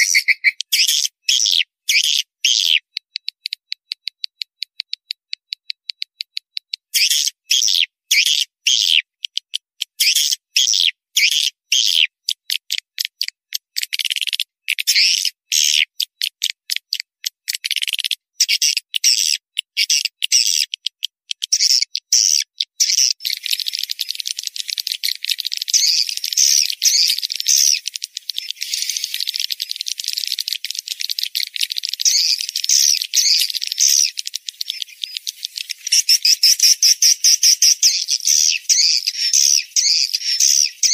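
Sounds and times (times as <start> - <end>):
swiftlets chirping and twittering: 0.0 - 3.6, 17.6 - 40.9.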